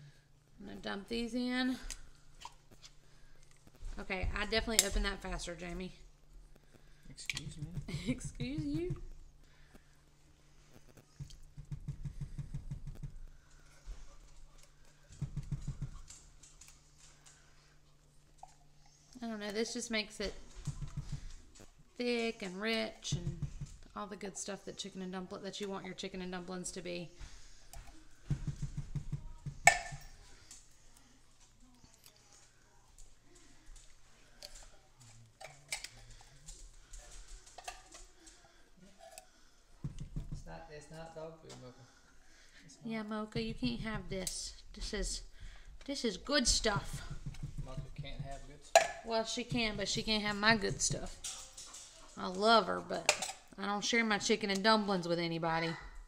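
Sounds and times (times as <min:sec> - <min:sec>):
can tapping against spatula: 0:27.8 - 0:30.1.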